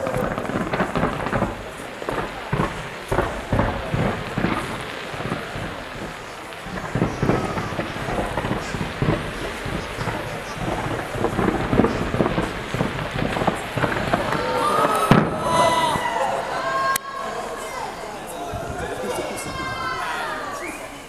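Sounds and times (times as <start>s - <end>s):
fireworks bangs: 0.0s - 21.0s
fireworks crackling hiss: 0.0s - 21.0s.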